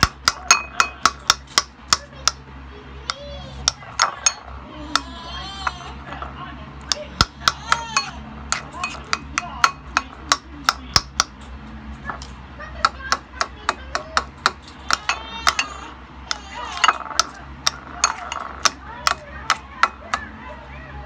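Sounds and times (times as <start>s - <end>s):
cutlery clinking against ceramic bowl: 0.0s - 2.4s, 6.9s - 11.3s, 16.6s - 19.2s.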